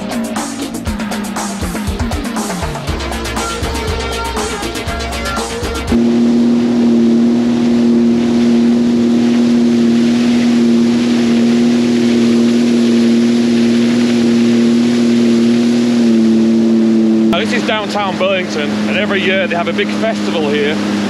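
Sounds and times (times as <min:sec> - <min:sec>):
background music: 0:00.0 - 0:06.0
water and spray hissing: 0:00.0 - 0:16.6
watercraft engine drone: 0:00.0 - 0:21.0.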